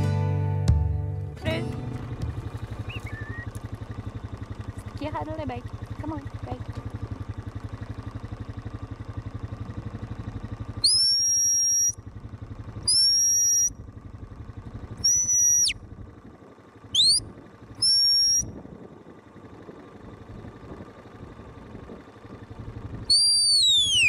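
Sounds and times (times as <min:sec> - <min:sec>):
high-pitched whistle blasts: 0:10.8 - 0:12.0, 0:12.9 - 0:13.7, 0:15.0 - 0:15.8, 0:16.9 - 0:17.2, 0:17.8 - 0:18.5, 0:23.1 - 0:24.0.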